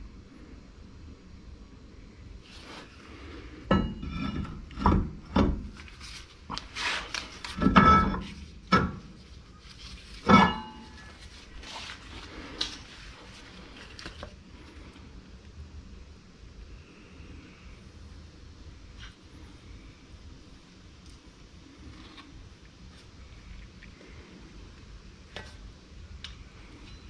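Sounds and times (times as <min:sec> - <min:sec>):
metal clanks and knocks: 0:03.7 - 0:05.7, 0:07.6 - 0:09.1, 0:10.2 - 0:11.1.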